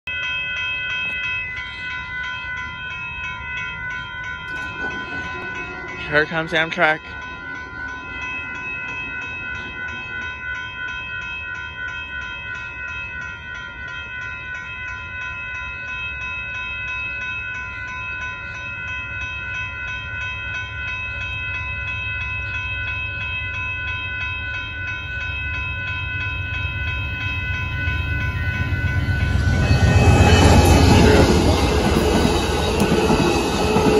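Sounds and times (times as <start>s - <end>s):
railroad crossing bells ringing: 0.0s - 33.9s
train rumbling: 2.8s - 11.5s, 19.5s - 33.9s.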